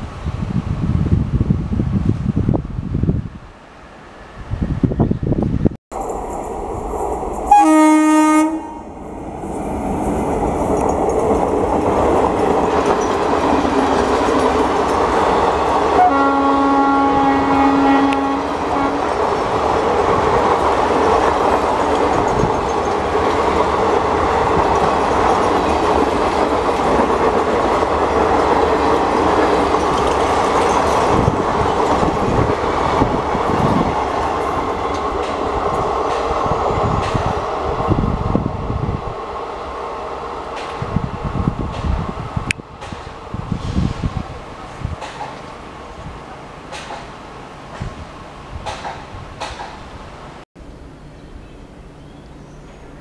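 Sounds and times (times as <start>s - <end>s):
train wheels on rails: 3.9s - 50.4s
locomotive horn blasts: 7.5s - 8.9s, 16.0s - 19.1s.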